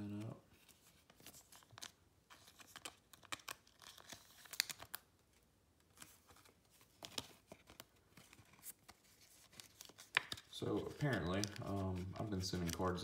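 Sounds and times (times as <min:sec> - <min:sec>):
plastic sleeve crinkling: 0:00.0 - 0:13.0.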